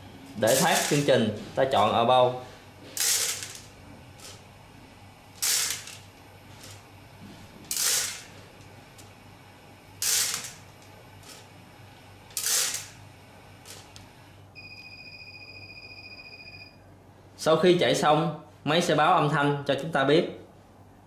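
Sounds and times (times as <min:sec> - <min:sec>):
tablets rattling in drum: 0:00.5 - 0:01.1.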